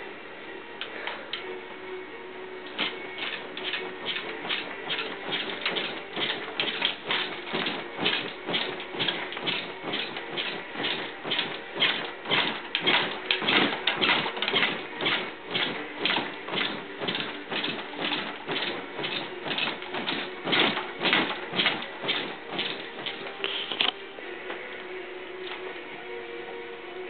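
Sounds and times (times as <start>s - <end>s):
wooden crib rattling and knocking: 2.7s - 23.5s.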